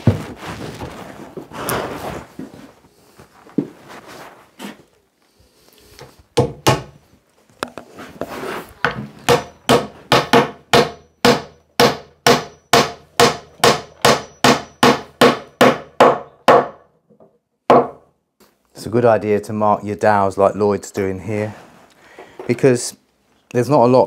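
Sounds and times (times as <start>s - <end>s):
hammer knocking wooden dowel: 6.4s - 6.9s, 8.8s - 18.0s.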